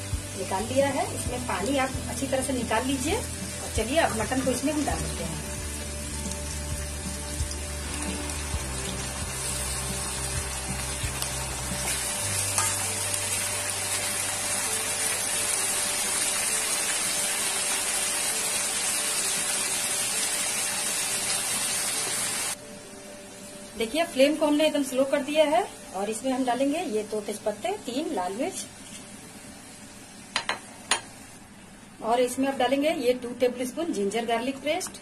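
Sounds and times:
meat sizzling in hot oil: 0.0 - 22.6.

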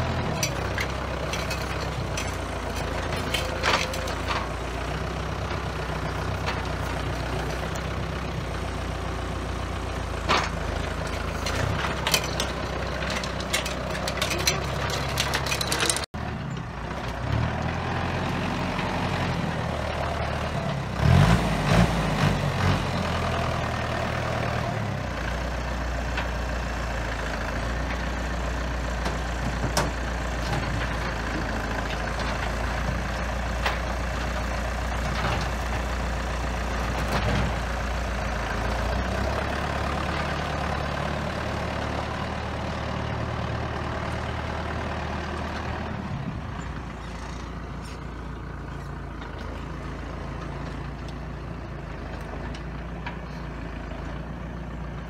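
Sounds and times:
tractor diesel engine running: 0.0 - 55.0
grapple clanking on logs: 0.1 - 8.1, 10.2 - 16.1, 28.9 - 37.8
low rumbling with knocks: 28.9 - 35.9.

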